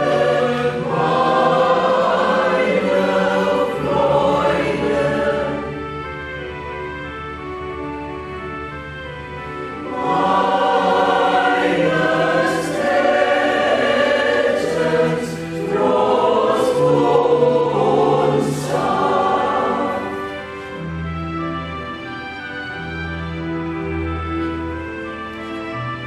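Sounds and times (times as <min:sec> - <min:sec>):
choir singing a hymn: 0:00.0 - 0:06.6, 0:09.7 - 0:21.0
sustained instrumental accompaniment: 0:00.0 - 0:26.0.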